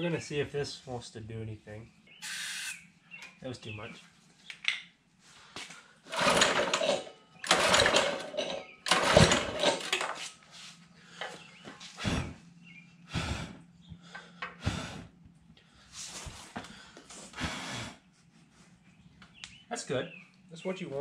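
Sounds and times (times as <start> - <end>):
engine turning over: 6.1 - 10.2
recoil pull-starter pulls: 6.1 - 10.2.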